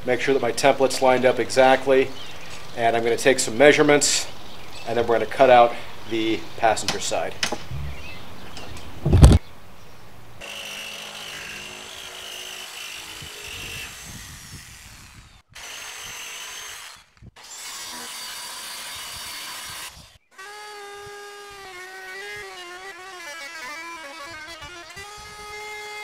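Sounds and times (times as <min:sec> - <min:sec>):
power tool cutting plywood: 0:10.4 - 0:26.0.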